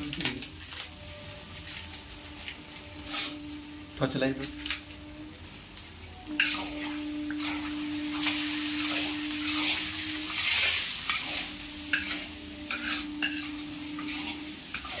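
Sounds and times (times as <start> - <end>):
food sizzling in a pan: 0.0 - 15.0
spatula scraping a pan: 1.5 - 3.6, 6.3 - 15.0.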